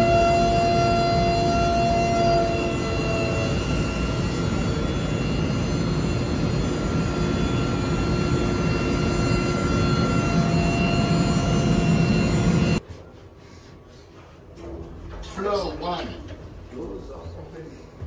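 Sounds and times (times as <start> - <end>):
machinery roar: 0.0 - 12.8
machinery whining tones: 0.0 - 12.8.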